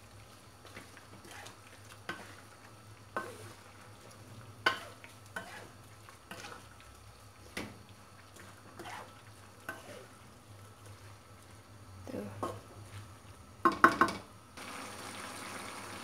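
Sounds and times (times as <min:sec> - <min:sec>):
wooden spatula scraping a wok: 0:00.6 - 0:06.8, 0:07.5 - 0:11.6.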